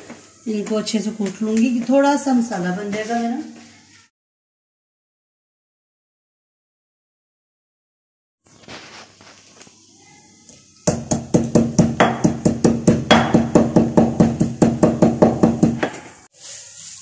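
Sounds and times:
pestle pounding in stone mortar: 10.9s - 16.1s.

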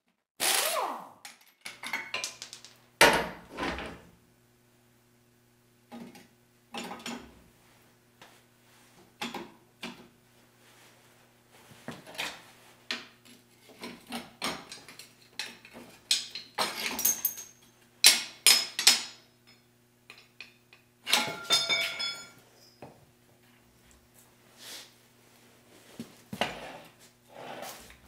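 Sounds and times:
steel tools clanking on metal: 13.8s - 22.8s.

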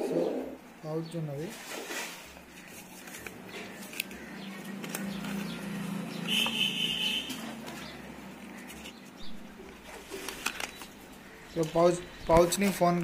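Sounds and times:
pigeon cooing: 0.0s - 0.6s
paper rustling: 1.4s - 6.4s, 7.2s - 13.0s.

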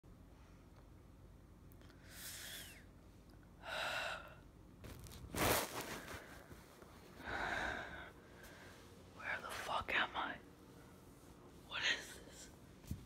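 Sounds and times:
person gasping and breathing hard: 7.2s - 8.6s.

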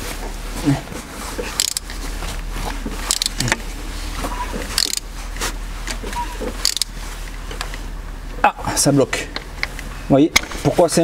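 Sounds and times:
steady low hum: 0.0s - 11.0s
metallic clicking of wrench: 1.6s - 1.9s, 3.1s - 3.5s, 4.8s - 5.0s, 6.6s - 6.9s.

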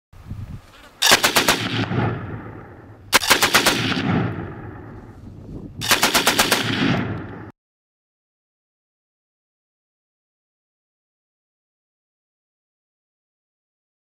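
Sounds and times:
automatic gunfire bursts: 1.0s - 4.3s, 5.8s - 7.5s
gunshot echo: 1.0s - 5.1s, 5.8s - 7.5s.

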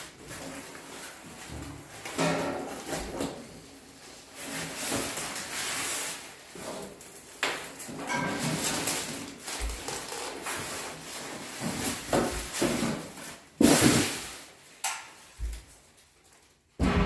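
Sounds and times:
metal cabinet knocks: 16.8s - 17.0s.

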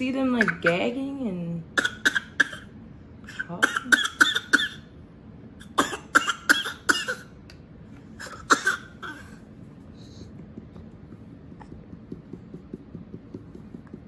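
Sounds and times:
baby coughing and gagging: 0.2s - 0.9s, 1.7s - 4.9s, 5.6s - 7.4s, 8.2s - 9.4s.

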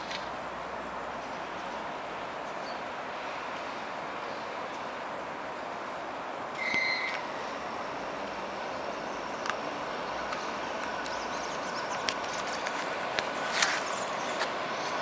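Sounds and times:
railway platform noise: 0.0s - 15.0s
electric train approaching: 3.4s - 15.0s.

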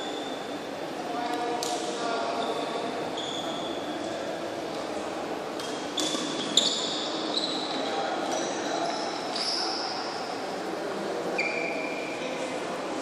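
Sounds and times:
murmur of voices: 0.0s - 13.0s
shoes squeaking on court floor: 2.4s - 3.9s, 5.6s - 10.4s, 11.4s - 12.1s.

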